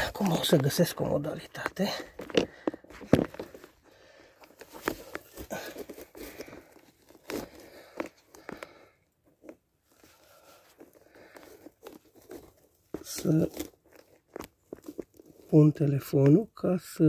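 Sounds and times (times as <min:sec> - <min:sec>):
rustling handling noise: 0:00.0 - 0:16.7.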